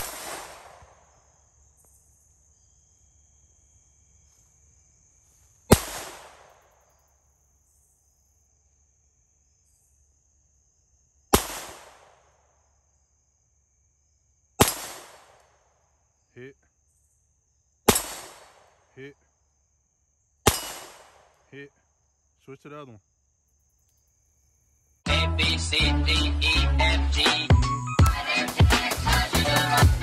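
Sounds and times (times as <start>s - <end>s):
pistol shots cracking: 0.0s - 1.0s, 5.7s - 6.6s, 11.4s - 12.2s, 14.6s - 15.4s, 17.9s - 18.8s, 20.5s - 21.4s.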